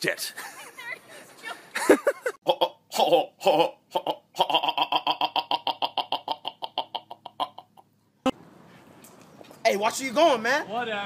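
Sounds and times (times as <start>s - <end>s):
man making vocal sounds: 2.4s - 7.8s
man stuttering ah syllable: 2.4s - 7.9s.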